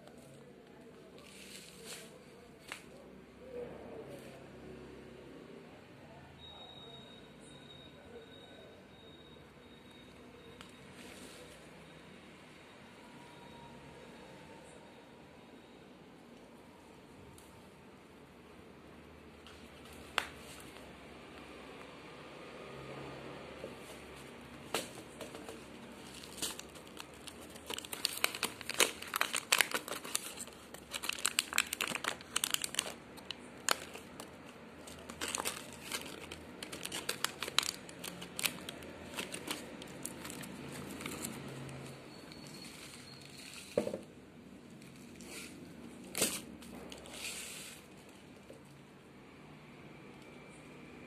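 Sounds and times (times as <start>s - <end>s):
foil crinkling: 24.8s - 43.8s.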